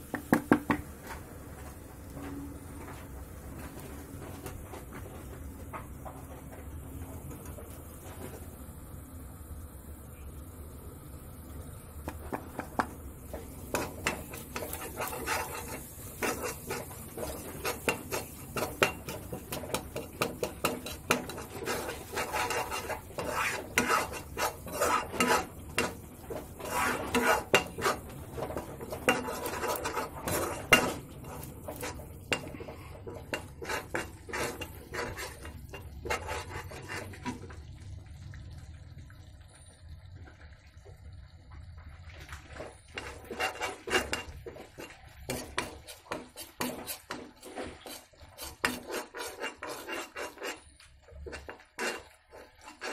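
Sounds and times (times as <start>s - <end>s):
metal spatula scraping a pan: 13.3s - 37.6s, 42.5s - 52.9s.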